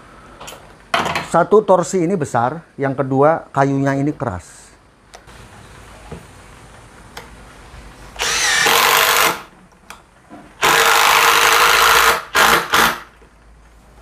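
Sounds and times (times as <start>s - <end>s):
impact driver driving screw: 8.2s - 9.5s, 10.6s - 13.1s.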